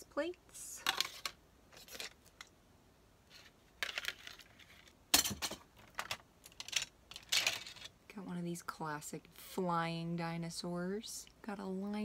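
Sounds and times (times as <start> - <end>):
plastic bricks clattering: 3.3 - 7.9.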